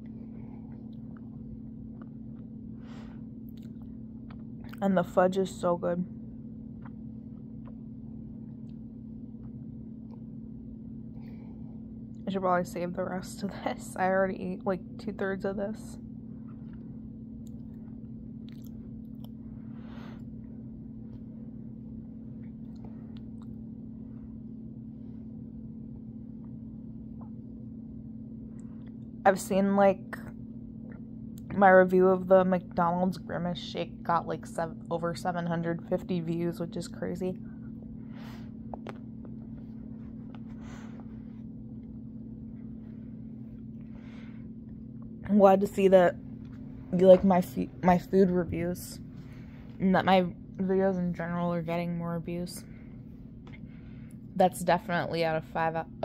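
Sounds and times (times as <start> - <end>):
steady low hum: 0.0 - 56.0
person chewing and swallowing: 0.7 - 2.7, 3.4 - 4.8, 6.7 - 10.3, 16.5 - 19.5, 22.4 - 23.6.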